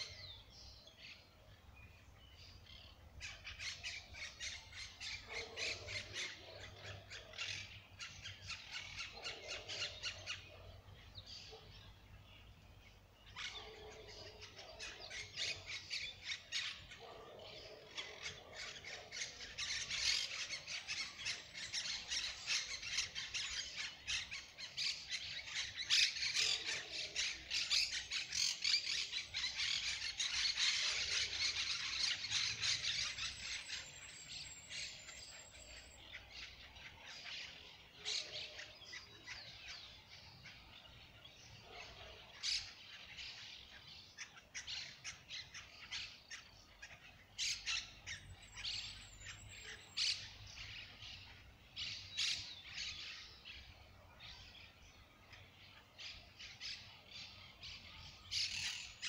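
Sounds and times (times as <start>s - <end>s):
birds chattering and squawking: 0.0s - 59.0s.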